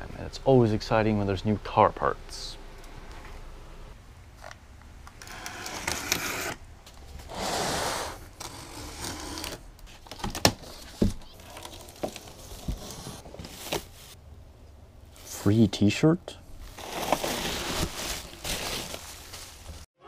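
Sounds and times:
box cutter slitting tape: 5.2 - 6.6, 7.3 - 9.6
cardboard flaps rustling: 9.4 - 14.2, 16.7 - 19.9.

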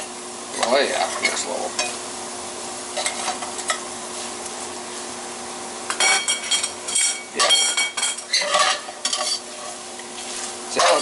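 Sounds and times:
meat sizzling in a skillet: 0.0 - 11.0
metal utensil scraping a pan: 6.0 - 9.8, 10.7 - 11.0.

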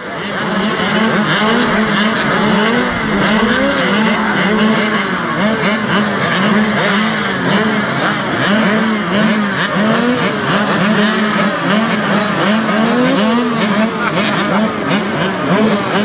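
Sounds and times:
dirt bike engines revving: 0.0 - 16.0.

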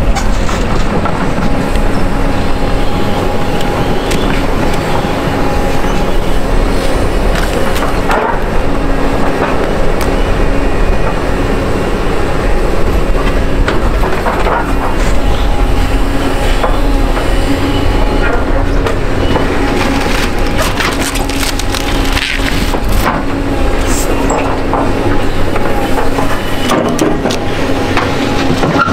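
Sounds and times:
excavator hydraulic hum: 0.0 - 28.9
wood cracking and splintering: 19.8 - 23.3.

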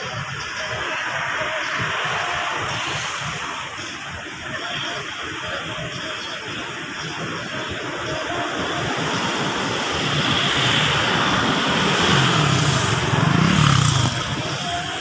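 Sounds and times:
vehicle passing: 9.6 - 15.0.

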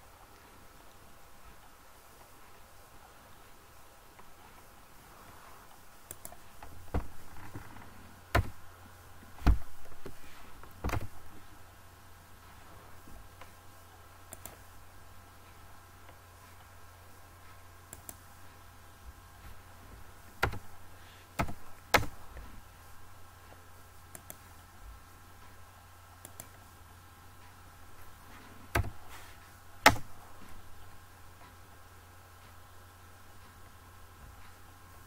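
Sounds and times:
faint steady hum: 0.0 - 35.0
computer mouse and keyboard clicks: 6.0 - 8.6, 9.4 - 11.3, 14.3 - 14.7, 17.9 - 18.2, 20.4 - 20.7, 21.4 - 22.2, 24.1 - 24.5, 26.2 - 26.6, 28.7 - 29.1, 29.8 - 30.1.

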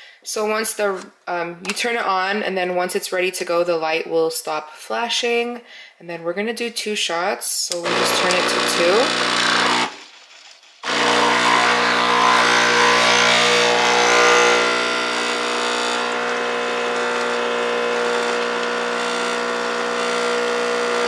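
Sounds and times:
espresso machine pump humming: 7.9 - 10.0, 10.8 - 21.0.

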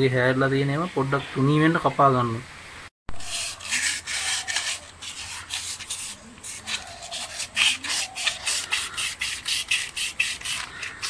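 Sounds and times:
sandpaper scraping on metal: 3.1 - 11.0.

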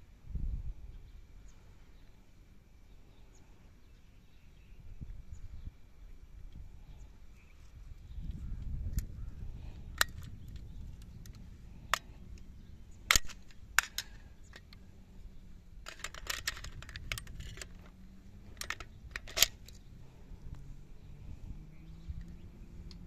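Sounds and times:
magazine clicking into gun: 9.9 - 14.8, 15.8 - 19.8
metallic gun clicks and clacks: 13.0 - 14.8, 15.8 - 19.8.

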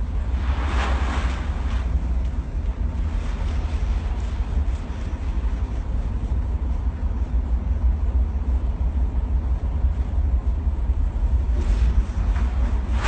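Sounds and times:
ship engines rumbling: 0.0 - 13.0
wind noise: 0.0 - 13.0.

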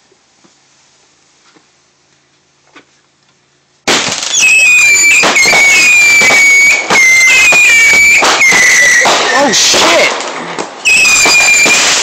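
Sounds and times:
faint hiss and small clicks: 0.0 - 4.3
fireworks shells bursting: 3.8 - 12.0
fireworks whistling: 3.8 - 12.0.

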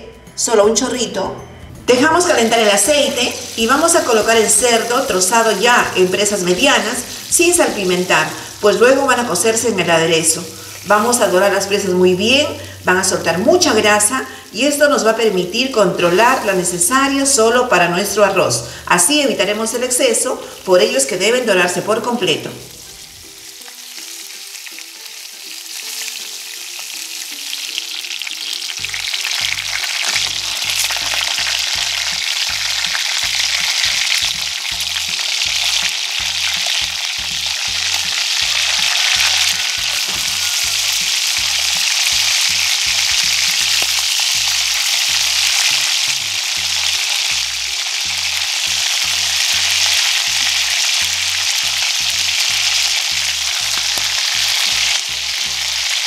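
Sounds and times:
pork frying in hot oil: 2.3 - 56.0.

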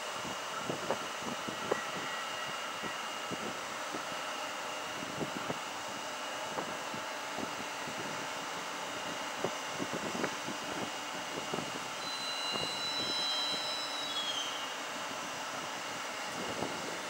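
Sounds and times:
locomotive cooling fans humming: 0.0 - 17.0
thin high whine: 12.0 - 17.0.

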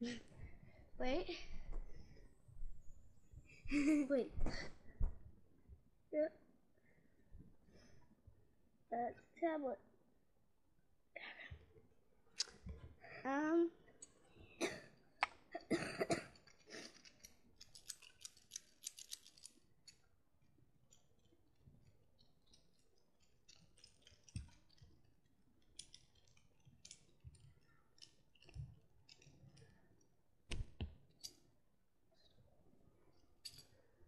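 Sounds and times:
clicks and rustles of handling: 16.3 - 31.6, 33.1 - 34.0.

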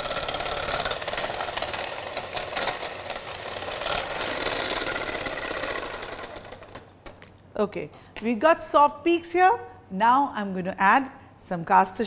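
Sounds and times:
electric hand mixer whipping: 0.0 - 6.8.

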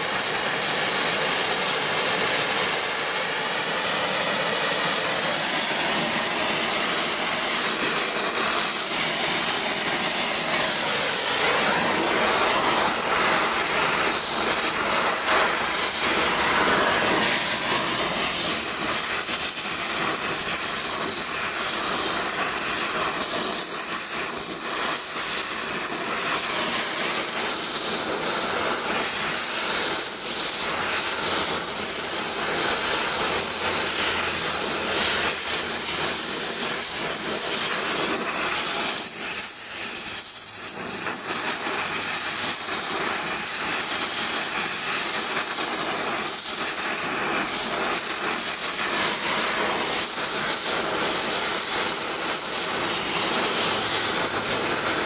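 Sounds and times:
torch flame hissing: 0.0 - 55.0.

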